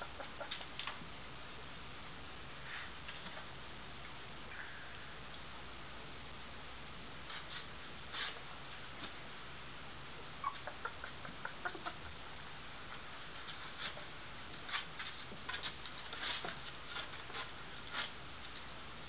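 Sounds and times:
puppies squeaking: 10.4 - 12.1.

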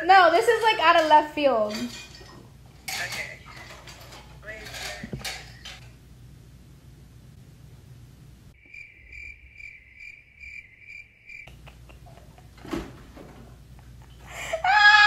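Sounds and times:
room background noise: 0.0 - 15.0
cricket chirping: 8.6 - 11.8.

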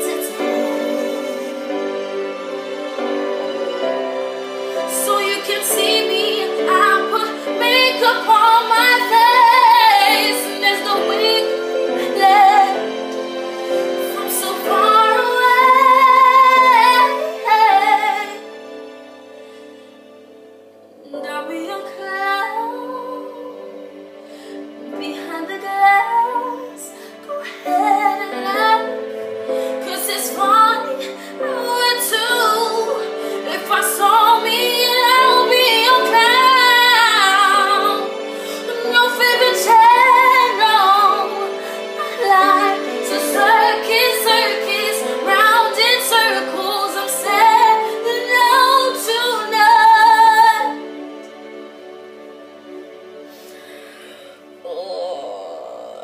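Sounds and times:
girl singing soul ballad: 4.9 - 12.8, 29.8 - 50.8.

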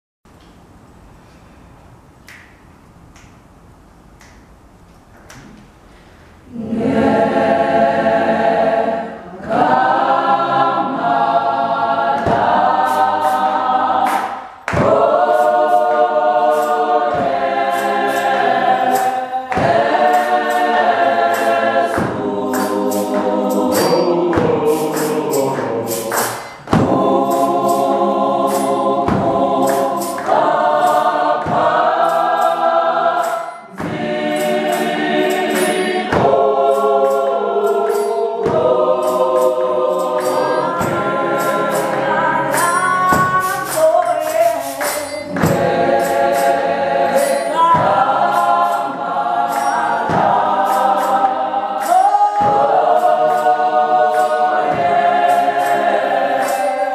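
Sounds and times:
hand claps: 2.2 - 3.4, 4.2 - 4.5, 12.1 - 36.4, 37.0 - 56.9
choir singing a cappella: 6.4 - 56.9
tambourine: 22.6 - 26.6, 40.1 - 47.6.

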